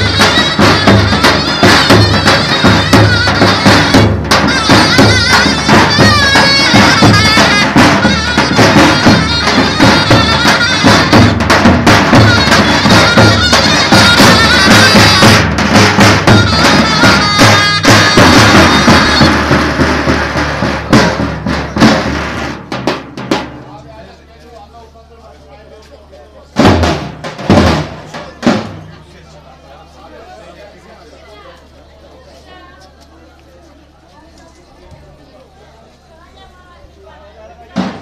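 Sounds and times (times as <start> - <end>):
reedy zurna melody: 0.0 - 21.6
drum strikes: 0.0 - 24.1, 26.6 - 29.1, 37.8 - 38.0.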